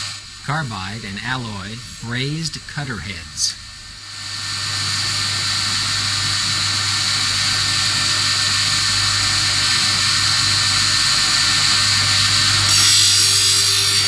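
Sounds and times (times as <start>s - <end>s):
grinding wheel hiss: 0.0s - 14.0s
low machine hum: 0.0s - 14.0s.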